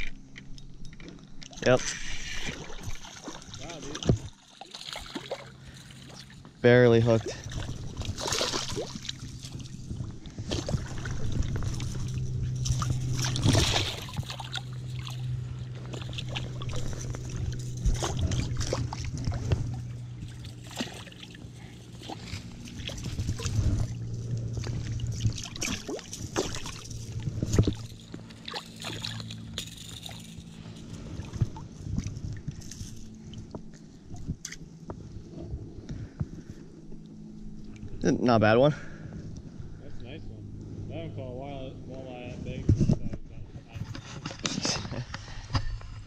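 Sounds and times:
steady low hum: 0.0s - 46.0s
fish splashing in water: 2.5s - 6.4s, 7.5s - 30.2s.

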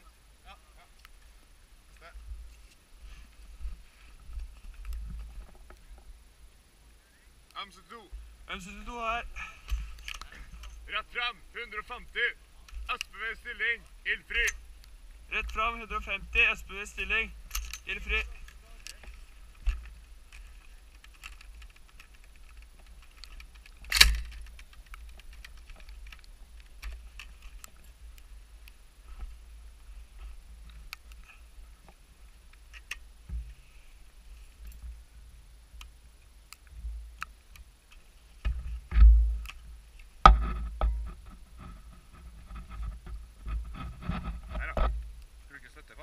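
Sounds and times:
gear handling clicks and rubbing: 17.5s - 27.8s.

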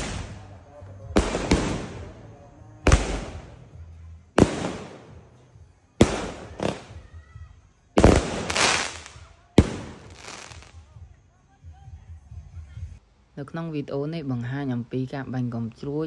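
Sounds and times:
firework bangs with hiss: 0.0s - 0.6s, 1.2s - 3.7s, 4.4s - 5.3s, 6.0s - 7.2s, 8.0s - 10.8s.

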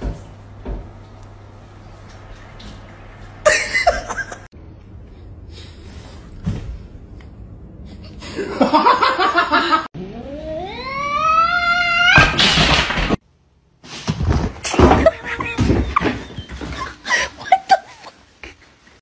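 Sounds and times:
person laughing: 3.4s - 4.5s, 8.0s - 9.9s, 14.8s - 18.6s
cat meowing: 10.3s - 12.3s.

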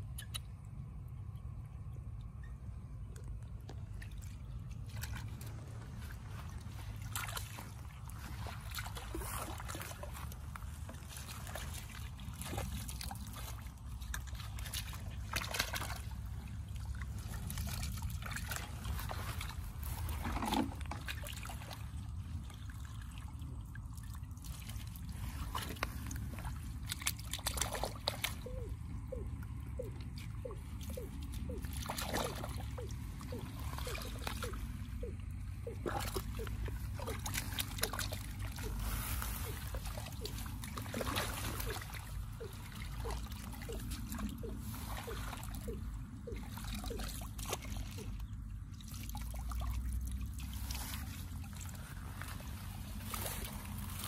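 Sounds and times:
muddy water sloshing and splashing: 0.0s - 54.0s.

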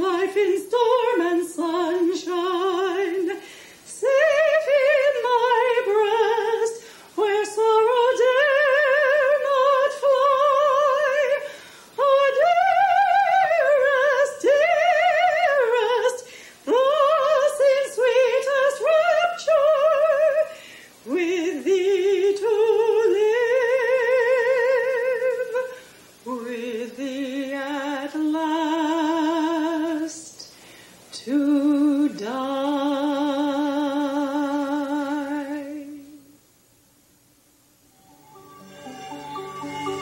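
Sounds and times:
woman singing operatically: 0.0s - 30.3s, 31.2s - 36.3s
singer's breaths: 3.4s - 3.9s, 6.8s - 7.2s, 11.4s - 12.0s, 16.2s - 16.7s, 20.5s - 21.0s, 30.4s - 31.1s.

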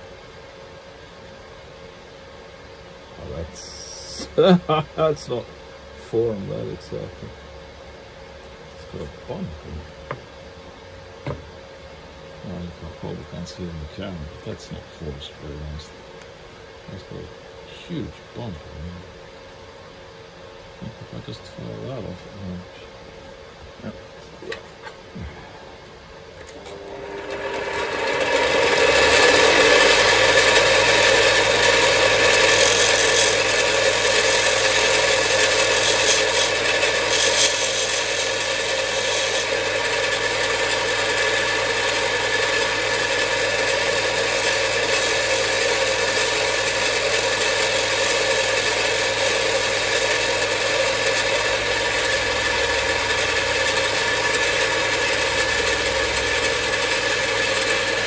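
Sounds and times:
grinder motor humming and whining: 26.4s - 58.0s
workpiece rasping against grinder: 28.7s - 58.0s.

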